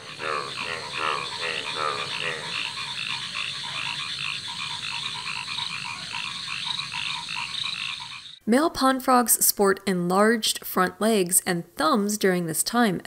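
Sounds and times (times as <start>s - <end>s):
chorus of frogs croaking: 0.0s - 8.4s.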